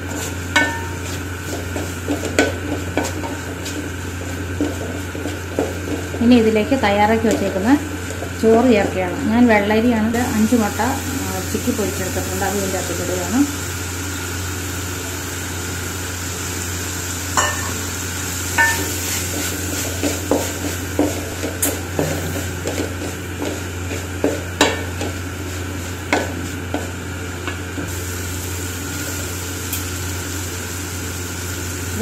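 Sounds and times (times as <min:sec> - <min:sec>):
wooden spatula scraping a pan: 0:00.0 - 0:06.4, 0:18.6 - 0:26.9
steady background hum: 0:00.0 - 0:32.0.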